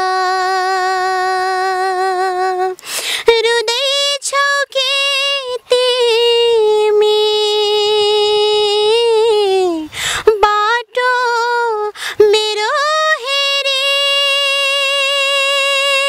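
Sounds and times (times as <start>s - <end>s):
woman singing unaccompanied: 0.0s - 16.0s
quick breath: 2.8s - 3.3s, 9.9s - 10.3s, 12.0s - 12.2s.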